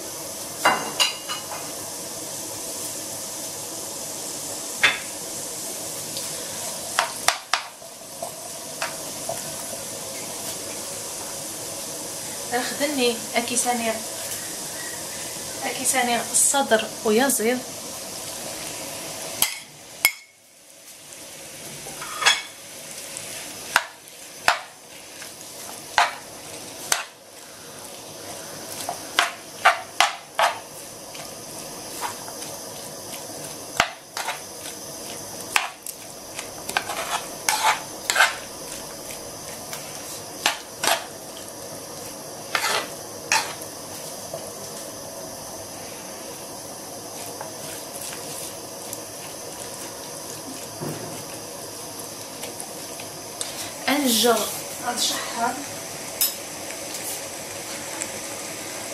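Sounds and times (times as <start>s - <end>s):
food sizzling in a pan: 0.0s - 58.9s
utensil scraping a pan: 36.7s - 38.5s, 42.5s - 43.6s.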